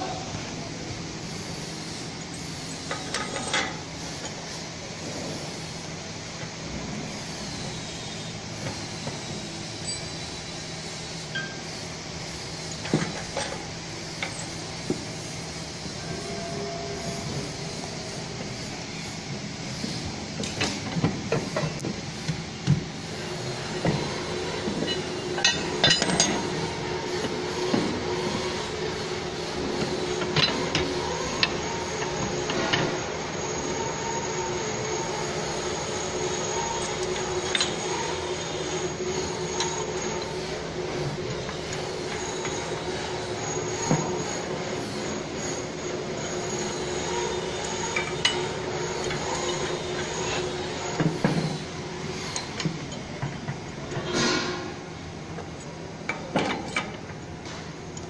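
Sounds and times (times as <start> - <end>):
machinery hum with high whine: 0.0 - 58.0
metallic clinks and knocks: 9.8 - 10.5, 24.8 - 26.5, 36.8 - 37.9.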